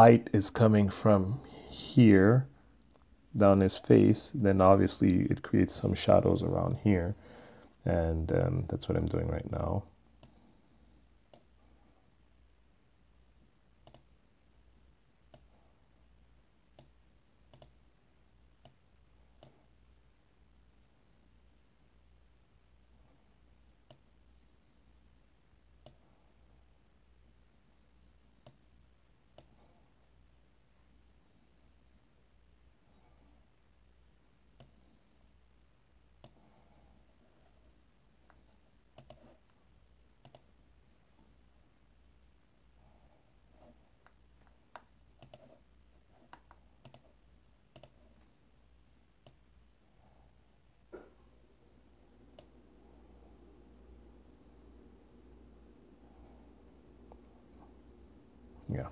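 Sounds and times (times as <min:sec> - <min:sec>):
faint low hum: 0:00.0 - 0:58.9
faint computer mouse clicks: 0:13.8 - 0:14.1, 0:16.8 - 0:17.8, 0:36.2 - 0:36.4, 0:39.0 - 0:39.4, 0:40.2 - 0:40.5, 0:44.0 - 0:45.5, 0:46.3 - 0:47.1, 0:47.7 - 0:48.1.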